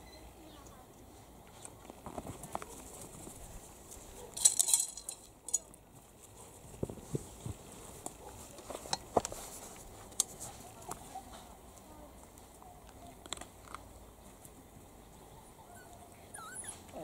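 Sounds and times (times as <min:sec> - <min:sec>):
puppies whimpering: 0:15.4 - 0:17.0.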